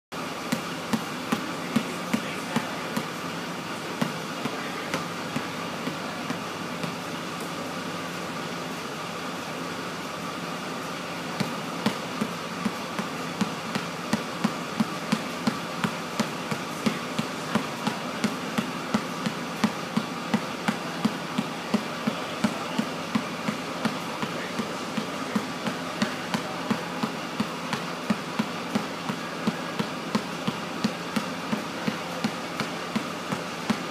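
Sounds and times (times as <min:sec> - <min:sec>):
steady background hum: 0:00.2 - 0:33.9
basketball bouncing on gym floor: 0:00.4 - 0:03.3, 0:03.9 - 0:07.5, 0:11.0 - 0:33.9.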